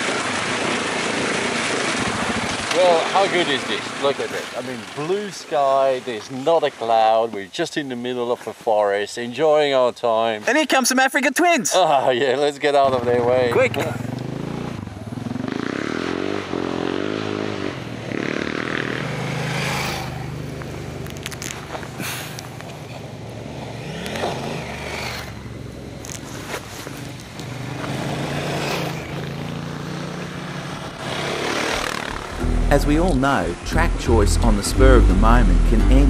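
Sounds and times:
motorcycles riding past: 0:12.8 - 0:33.6
stones crunching under tyres: 0:20.5 - 0:23.0, 0:25.9 - 0:29.3.

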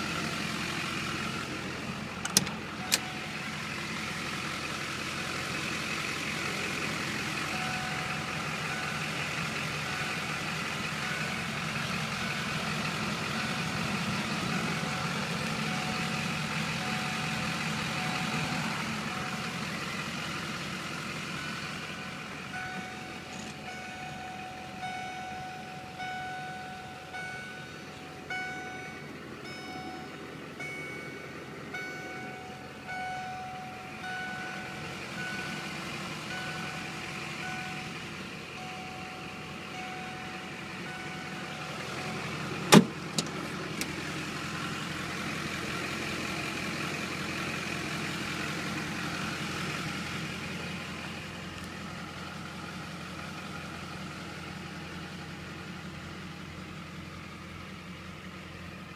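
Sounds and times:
diesel engine idling: 0:00.0 - 0:58.9
dashboard warning chime: 0:02.2 - 0:03.7, 0:07.4 - 0:43.3.

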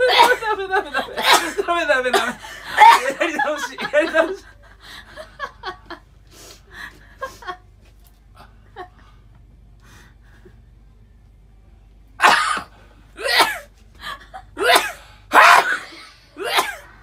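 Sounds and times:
man sneezing: 0:12.2 - 0:13.7, 0:14.6 - 0:16.9.

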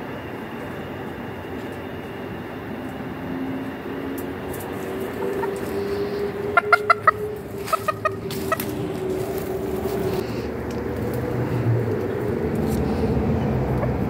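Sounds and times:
steady low hum: 0:00.0 - 0:14.0
chickens clucking: 0:04.5 - 0:10.4, 0:12.0 - 0:14.0.

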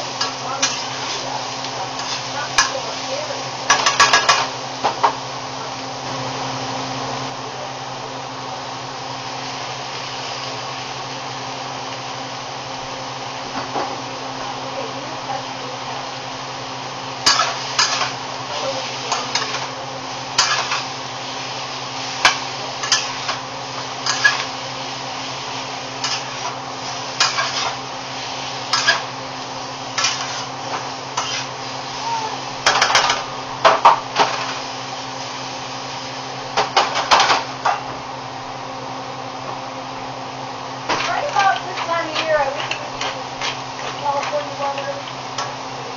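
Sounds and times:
utensil scraping metal skillet: 0:00.1 - 0:03.0, 0:17.2 - 0:18.2, 0:20.4 - 0:20.9, 0:22.2 - 0:23.4, 0:24.0 - 0:24.6, 0:26.0 - 0:27.8, 0:28.6 - 0:29.1, 0:29.9 - 0:31.6, 0:40.9 - 0:45.5.

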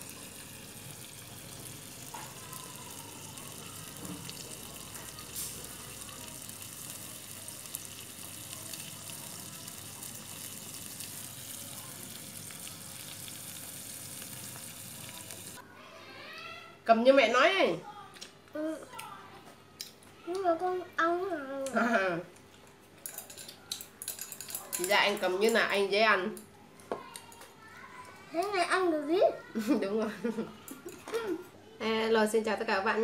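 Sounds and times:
scallops sizzling on grill: 0:00.0 - 0:15.6.

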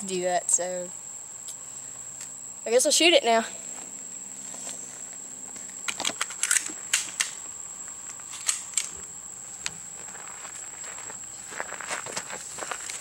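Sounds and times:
pistol metal clicks: 0:05.9 - 0:07.4, 0:08.3 - 0:08.9.

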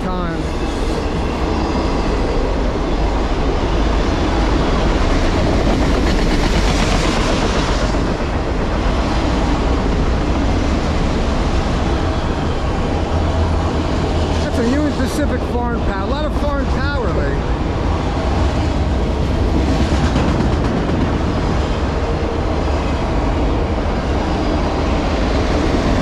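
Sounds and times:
steel wheels on rails: 0:16.0 - 0:26.0.

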